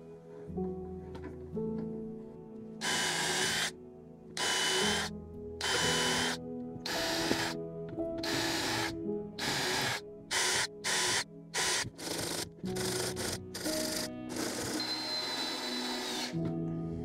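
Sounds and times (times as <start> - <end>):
background music: 0.0 - 17.0
hand drill rasping into plywood: 2.8 - 3.7, 4.4 - 7.6, 8.2 - 16.4.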